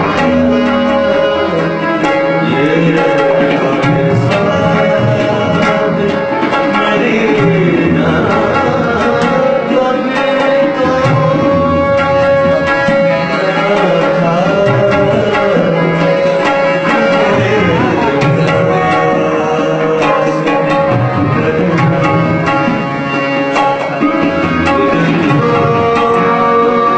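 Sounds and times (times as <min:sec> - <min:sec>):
tabla playing: 0:00.0 - 0:26.9.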